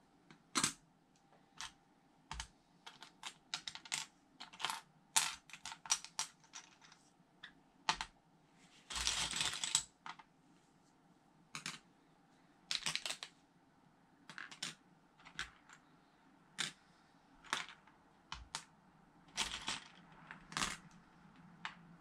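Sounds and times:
plastic pieces clicking and clattering: 12.7 - 13.3, 19.3 - 21.0.

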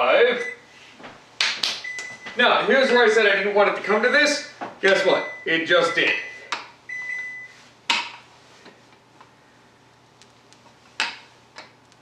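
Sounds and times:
electronic appliance beep: 0.3 - 0.7, 1.8 - 2.4, 5.2 - 7.6.

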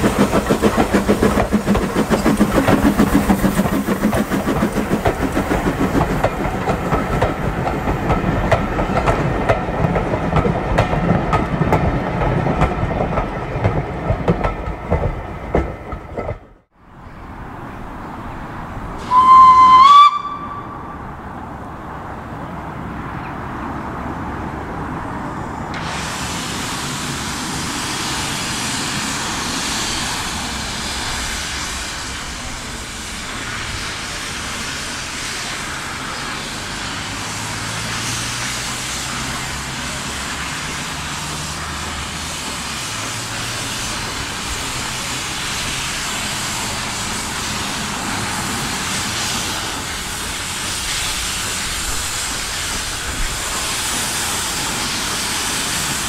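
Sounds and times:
steam locomotive hissing: 0.0 - 16.4, 18.5 - 21.3, 24.9 - 56.0.

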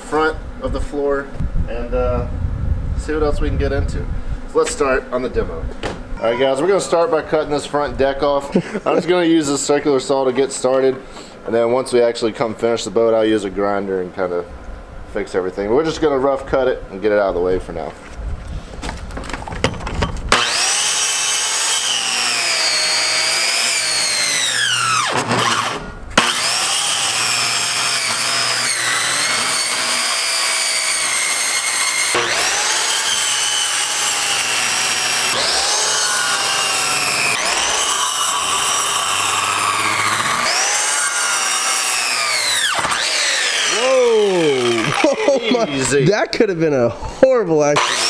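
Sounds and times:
circular saw cutting: 20.3 - 46.1, 47.8 - 48.0.

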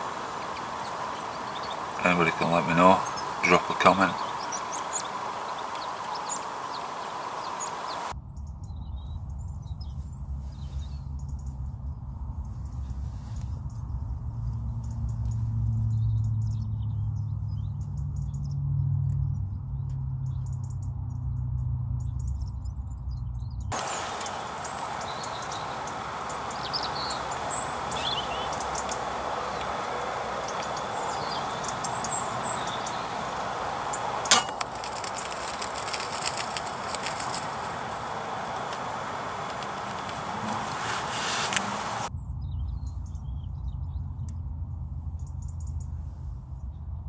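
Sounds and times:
steady hiss: 0.0 - 8.2, 23.7 - 42.1
birds chirping: 0.0 - 11.8, 22.0 - 44.3
low rumble: 42.0 - 47.0.

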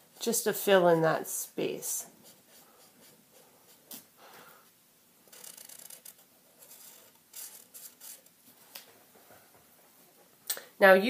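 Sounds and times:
marker scratching on paper: 0.2 - 4.2, 5.3 - 8.3.

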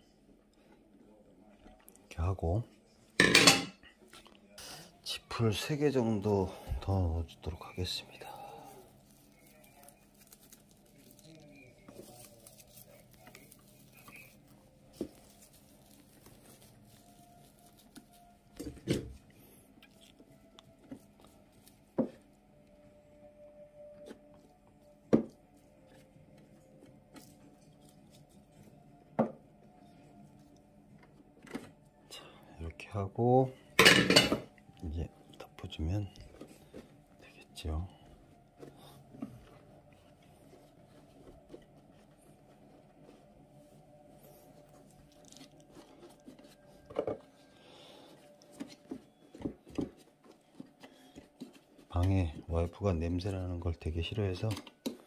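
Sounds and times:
faint steady hum: 2.6 - 55.0
cloth rustling: 6.3 - 19.3.

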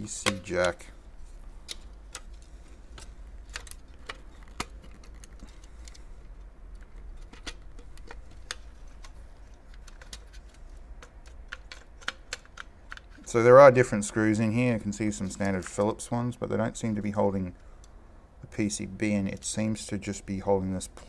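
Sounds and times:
low steady hum: 0.0 - 21.0
clicks of plastic and metal parts: 1.6 - 13.3.

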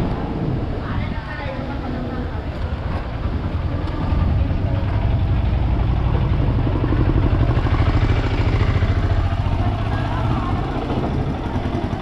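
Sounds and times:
motorcycle engine idling: 3.0 - 12.0.

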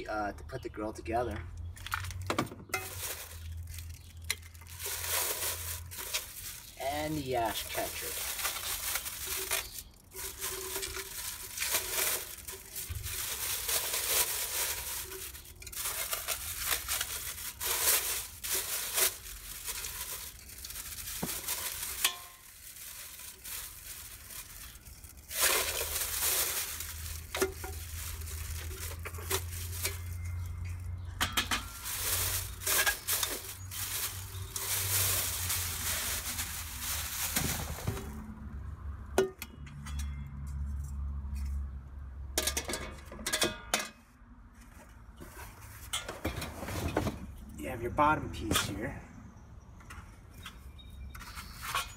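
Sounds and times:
plastic bag crinkling: 1.7 - 31.1, 31.7 - 38.2.

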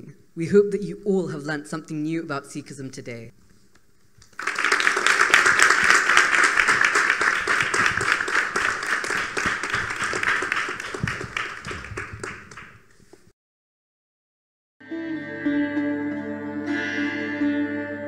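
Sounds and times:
audience applauding: 4.2 - 12.9.

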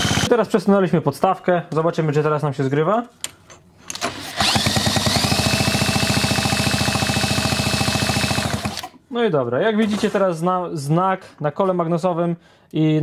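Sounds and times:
two-stroke engine spinning: 0.0 - 0.3, 4.1 - 8.9.

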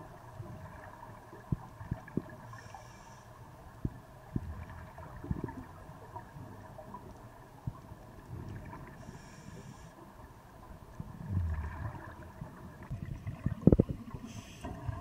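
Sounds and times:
underwater bubbles gurgling: 0.0 - 15.0
steady hum: 8.3 - 15.0.

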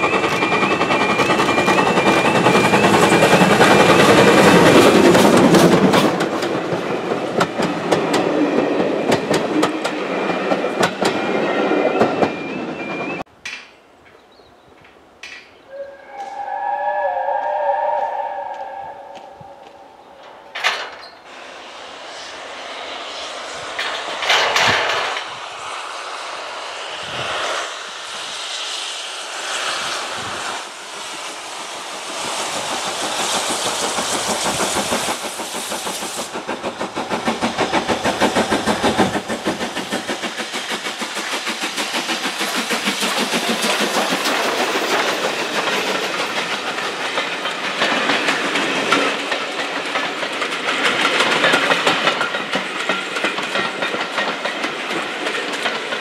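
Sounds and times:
steam train passing: 0.0 - 13.6, 14.7 - 56.0
wheels clattering on rails: 0.0 - 14.2, 18.7 - 21.2, 23.7 - 25.3, 32.2 - 56.0.

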